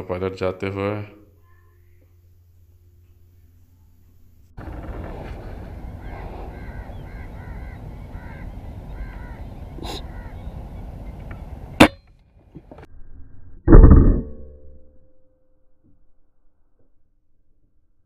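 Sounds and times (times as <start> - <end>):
outdoor background noise: 0.0 - 18.0
bird calling in paired notes: 5.4 - 11.9.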